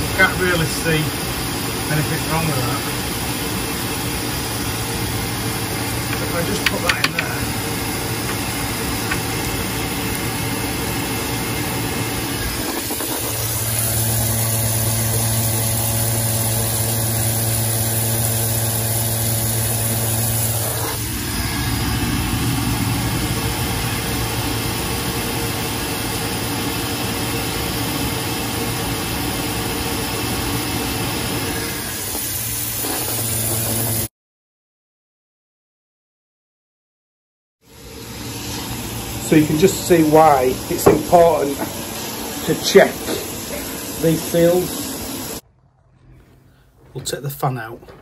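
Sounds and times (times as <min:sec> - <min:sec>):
boiler fan and burner rushing: 0:00.0 - 0:34.1, 0:37.6 - 0:48.0.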